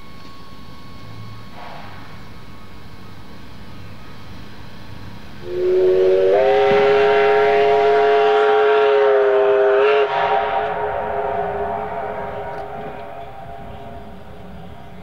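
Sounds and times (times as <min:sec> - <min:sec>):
steam locomotive whistle: 0:05.4 - 0:15.0.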